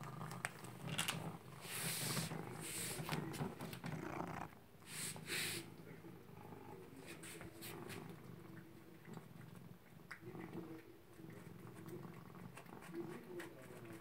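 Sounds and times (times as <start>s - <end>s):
kibble crunching clicks: 0.0s - 1.2s
cat purring: 0.0s - 14.0s.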